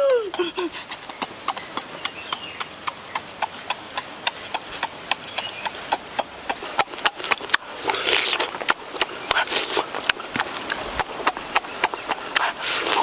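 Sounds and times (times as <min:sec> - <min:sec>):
sharp rhythmic clicking: 0:00.0 - 0:07.6.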